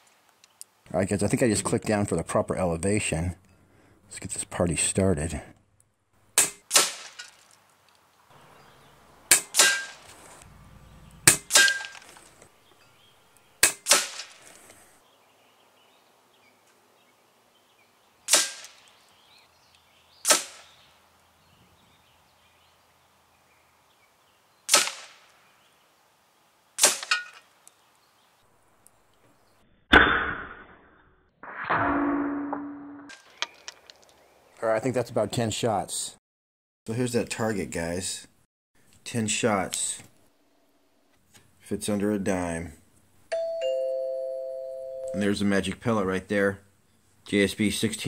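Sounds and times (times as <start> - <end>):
air rifle shots cracking: 6.4 - 7.3, 9.3 - 10.2, 11.2 - 12.3, 13.6 - 14.4, 18.3 - 18.9, 20.2 - 20.8, 24.7 - 25.3, 26.8 - 27.4.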